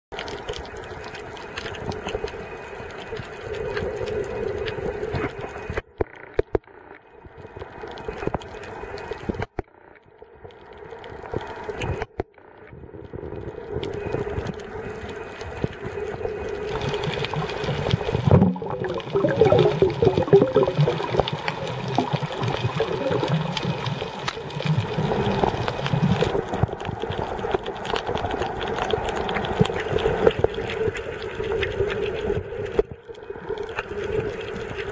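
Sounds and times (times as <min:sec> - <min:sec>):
muffled underwater water noise: 0:00.1 - 0:34.9
low water churning: 0:13.4 - 0:34.9.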